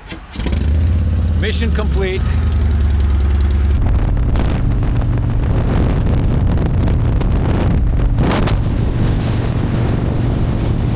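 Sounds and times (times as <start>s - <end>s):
motorcycle engine rumble: 0.0s - 10.9s
wind rush on microphone: 0.6s - 10.9s.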